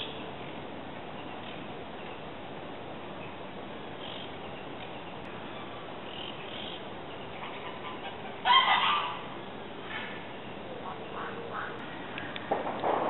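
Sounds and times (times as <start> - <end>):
bird honking call: 5.6 - 9.4, 10.8 - 12.1.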